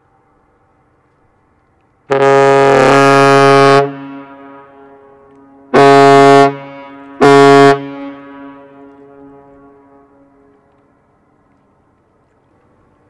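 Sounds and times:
ship's horn blasts: 0:02.1 - 0:10.8.

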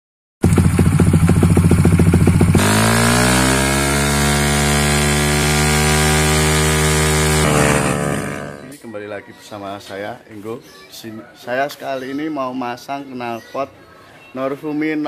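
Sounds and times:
motorcycle engine idling and revving: 0:00.4 - 0:08.8.

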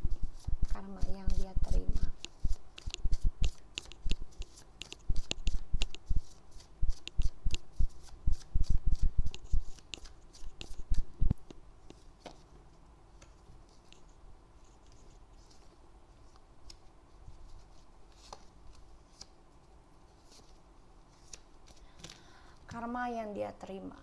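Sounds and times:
cards being shuffled: 0:00.1 - 0:11.1, 0:14.8 - 0:19.4.

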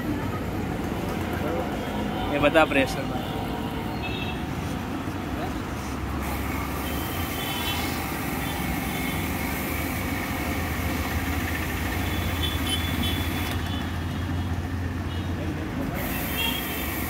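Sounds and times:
pressure washer spray hiss: 0:06.2 - 0:11.1, 0:16.0 - 0:17.0.

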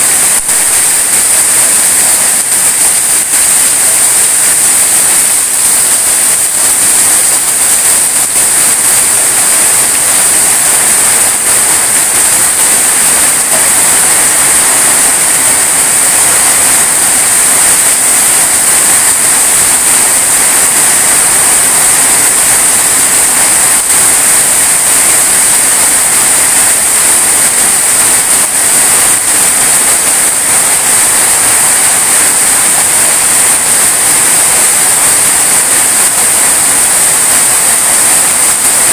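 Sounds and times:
heavy rain pouring: 0:00.0 - 0:38.9.

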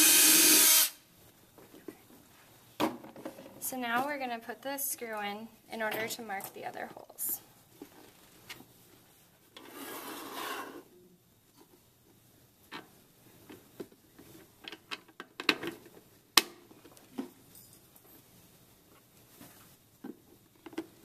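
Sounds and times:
scraping rub on plastic: 0:09.6 - 0:10.9.

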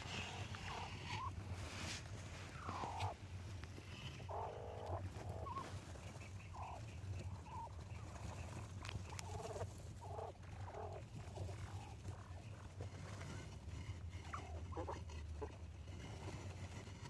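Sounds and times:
quail soft calls: 0:00.0 - 0:13.4, 0:14.0 - 0:15.7.

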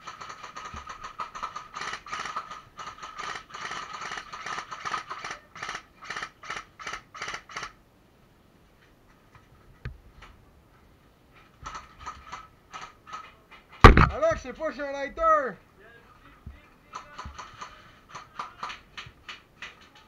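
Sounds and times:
airsoft rifle firing bursts: 0:00.0 - 0:07.8, 0:16.9 - 0:19.0
sharp knock: 0:13.8 - 0:14.4.

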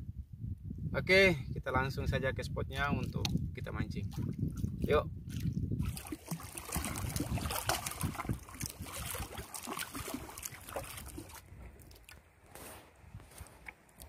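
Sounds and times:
water slopping against hull: 0:04.1 - 0:14.0
paddle strokes splashing: 0:05.3 - 0:14.0.

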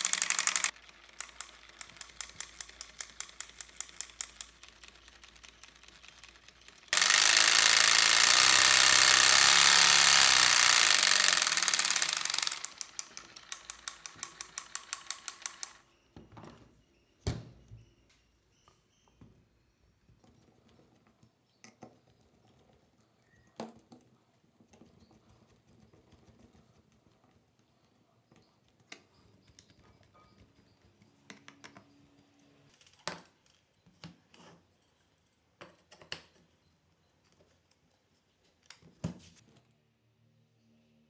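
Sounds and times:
screwdriver driving screws into wood: 0:00.0 - 0:00.8, 0:06.9 - 0:15.8.

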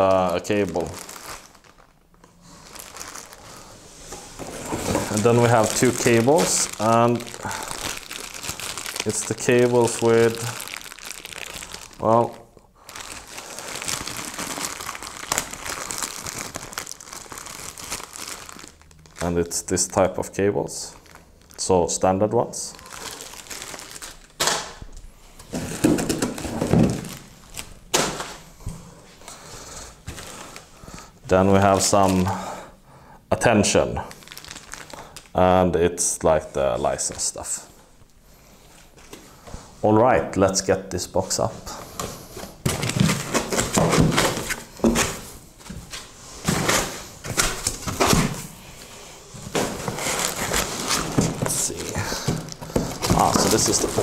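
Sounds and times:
handling and rustling: 0:00.4 - 0:12.3, 0:41.7 - 0:54.0
items thumping on table: 0:25.5 - 0:27.2.

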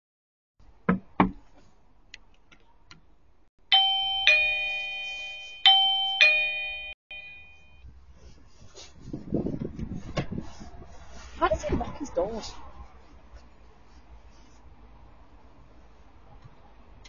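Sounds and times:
doorbell ding-dong chime: 0:03.7 - 0:07.8.

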